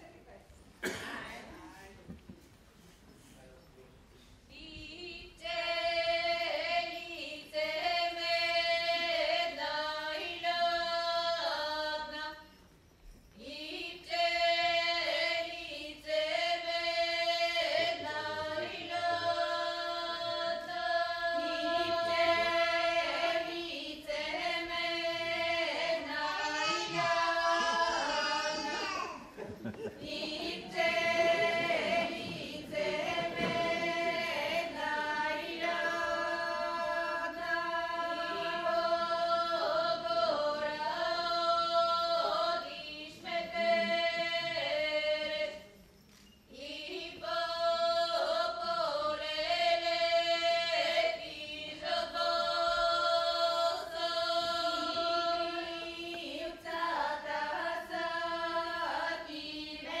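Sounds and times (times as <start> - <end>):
women singing in parts: 4.5 - 12.5, 13.4 - 45.8, 46.5 - 60.0.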